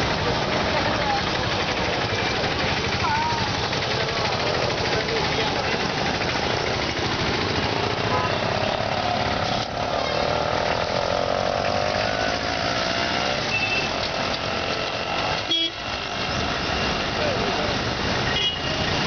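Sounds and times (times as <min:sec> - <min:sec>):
vehicles passing: 0:00.0 - 0:19.0
car horn tooting: 0:08.0 - 0:08.5, 0:15.4 - 0:15.9, 0:18.3 - 0:18.8.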